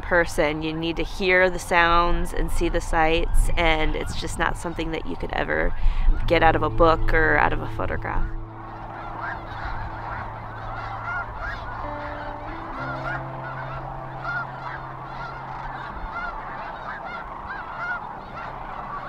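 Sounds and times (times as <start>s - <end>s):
cranes calling: 5.6s - 19.0s
soft background music: 6.2s - 19.0s.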